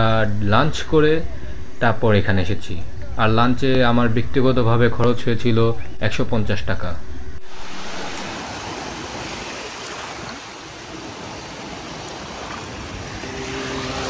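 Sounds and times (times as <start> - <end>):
small waves breaking on shore: 7.4 - 14.0.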